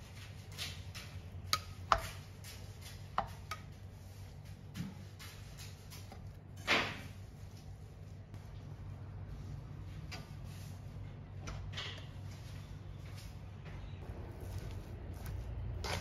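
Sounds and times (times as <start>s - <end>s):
low steady hum: 0.0s - 16.0s
spatula scraping an iron wok: 14.4s - 16.0s.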